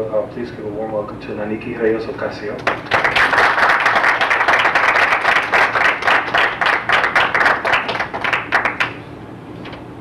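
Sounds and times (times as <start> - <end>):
audience applauding: 2.6 - 9.0.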